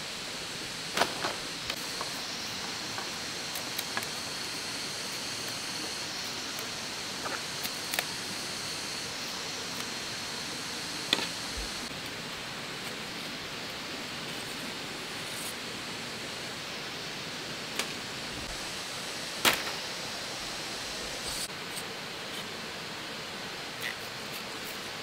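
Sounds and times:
forest hiss: 0.0 - 25.0
bamboo clicks and snaps: 7.6 - 8.1.

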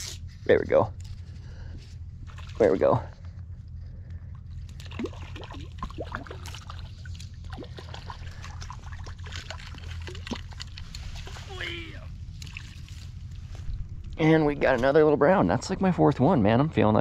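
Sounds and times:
low wind rumble on microphone: 1.0 - 17.0
fish splashing in water: 4.8 - 10.9
dry reeds crackling: 9.6 - 14.0.

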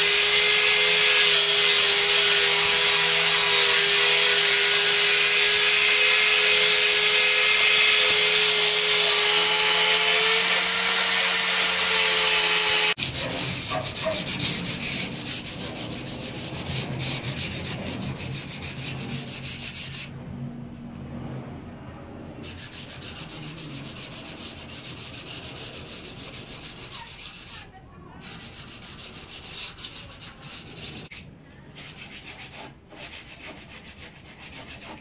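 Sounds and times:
angle grinder grinding steel: 0.0 - 20.1, 22.4 - 31.1
rapid rubbing strokes: 12.9 - 20.1, 22.4 - 35.0.

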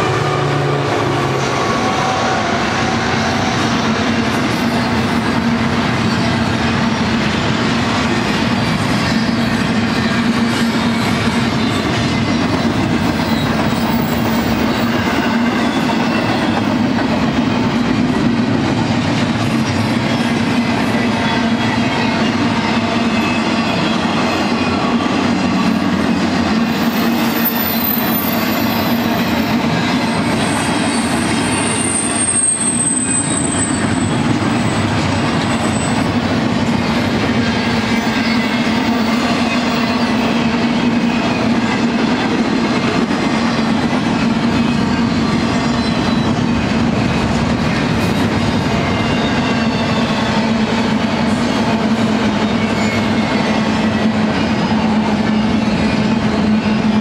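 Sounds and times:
train wheels rumbling on rail: 0.0 - 57.0
high thin wheel squeals: 21.0 - 36.2, 36.8 - 41.7, 52.4 - 57.0.

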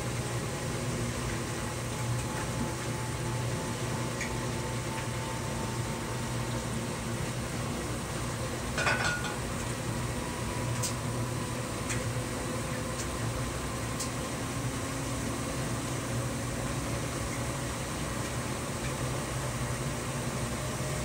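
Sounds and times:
washing machine motor hum: 0.0 - 21.0
washing machine clatter: 0.1 - 5.7, 8.6 - 10.0.

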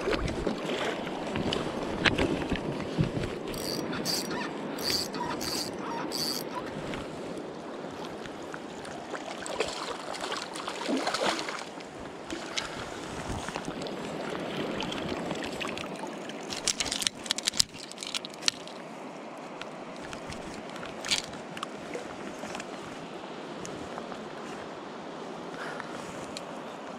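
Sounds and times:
water sloshing around legs: 7.9 - 19.0
sharp splashes and knocks: 9.4 - 11.7.

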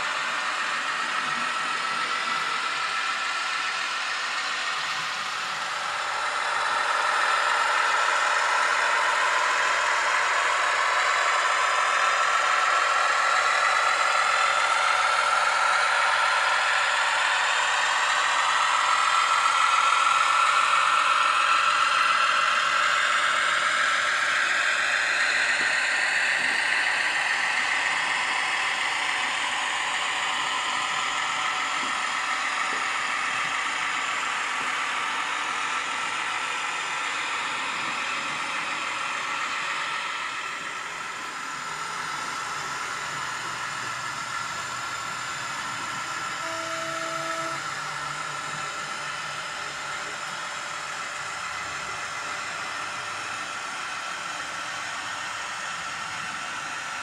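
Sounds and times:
model train whirring and rattling: 0.0 - 57.0.

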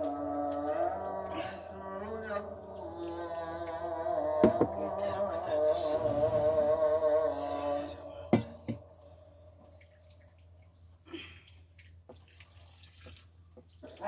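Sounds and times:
chanted call from mosque: 0.0 - 9.2
water dripping and trickling: 0.0 - 14.0.

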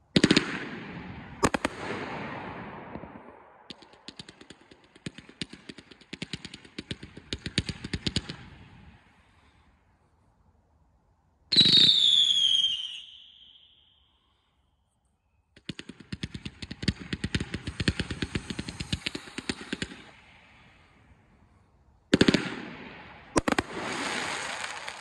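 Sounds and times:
firework sharp pops: 0.2 - 9.4, 15.5 - 21.1, 22.1 - 25.0
firework burst with falling whistle: 11.5 - 14.2.

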